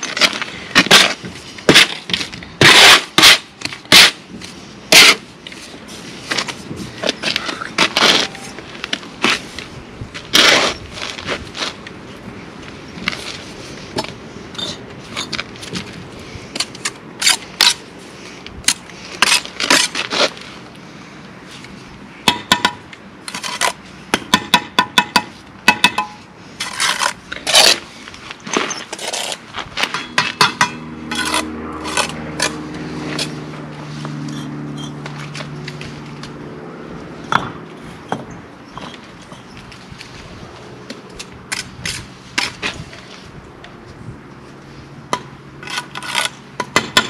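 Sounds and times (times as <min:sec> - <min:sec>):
trowel tapping on bricks: 0:24.2 - 0:26.2, 0:37.3 - 0:39.4.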